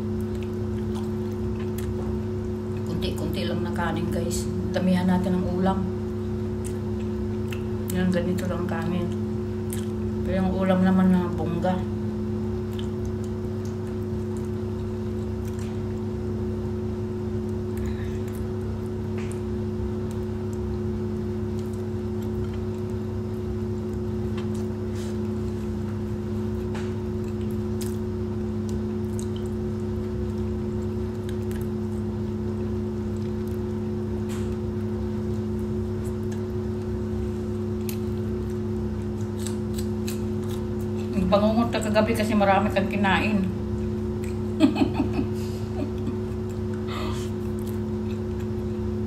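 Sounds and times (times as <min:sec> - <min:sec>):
person eating rice by hand: 0:00.0 - 0:02.8, 0:12.5 - 0:41.1, 0:45.8 - 0:49.0
appliance hum with two tones: 0:00.0 - 0:49.0.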